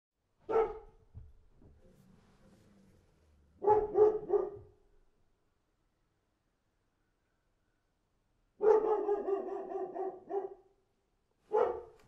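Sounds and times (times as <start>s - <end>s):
dog barking: 0.4s - 1.0s, 3.6s - 4.8s, 8.6s - 10.8s, 11.5s - 12.0s.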